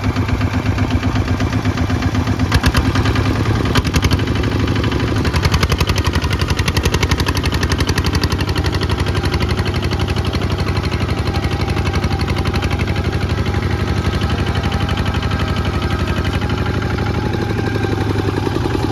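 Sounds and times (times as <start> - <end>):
diesel engine chugging: 0.0 - 18.9.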